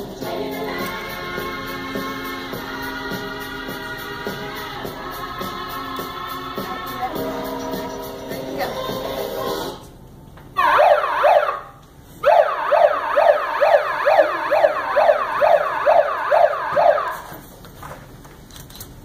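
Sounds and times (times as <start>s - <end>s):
ambulance siren yelp: 10.6s - 17.3s.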